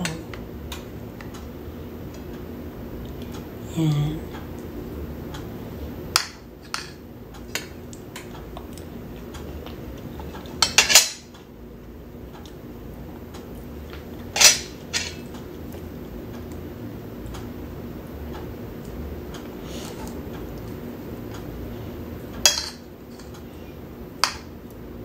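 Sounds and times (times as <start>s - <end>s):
cutlery clinking on a ceramic plate: 10.6s - 11.3s, 14.4s - 15.2s, 22.4s - 23.3s.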